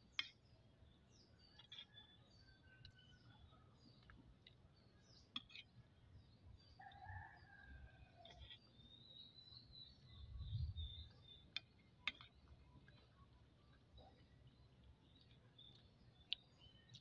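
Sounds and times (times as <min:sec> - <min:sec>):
faint rooster crowing: 0:01.6 - 0:03.8, 0:06.8 - 0:08.6
bird chirping: 0:08.5 - 0:17.0.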